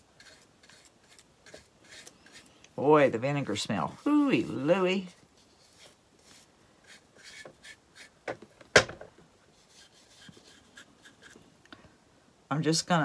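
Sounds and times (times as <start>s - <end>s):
paintbrush scraping on wood: 0.0s - 8.2s, 9.5s - 11.4s.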